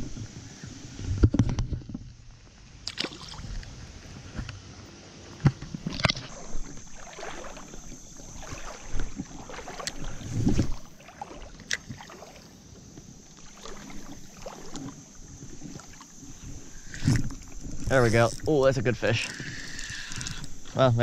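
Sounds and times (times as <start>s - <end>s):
water sloshing and splashing: 2.8s - 4.5s, 5.3s - 21.0s.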